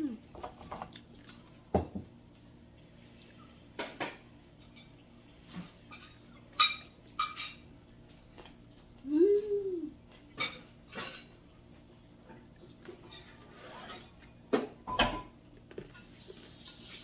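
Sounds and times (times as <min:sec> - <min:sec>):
dishes and cutlery clinking: 0:03.8 - 0:07.7, 0:10.2 - 0:11.8, 0:12.8 - 0:16.2.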